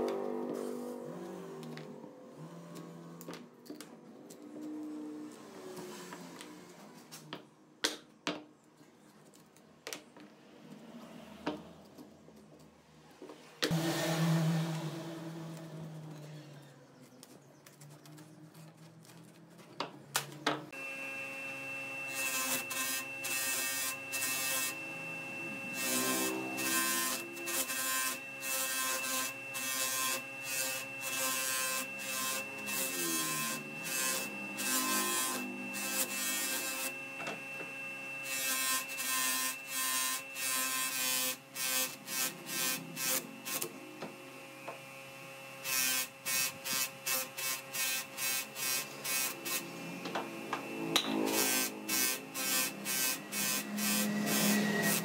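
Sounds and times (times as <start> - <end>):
electric sanding motor humming: 20.8 - 55.0
wood rasping on sanding disc: 51.2 - 55.0.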